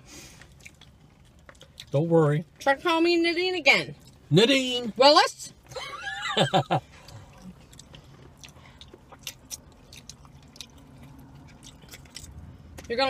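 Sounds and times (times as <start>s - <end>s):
man chewing food: 0.1s - 2.1s, 5.6s - 12.9s.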